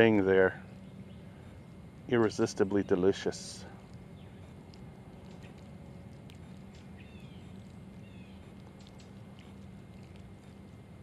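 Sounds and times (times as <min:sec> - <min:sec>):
steady low rumble: 0:00.0 - 0:11.0
faint ticks: 0:03.7 - 0:11.0.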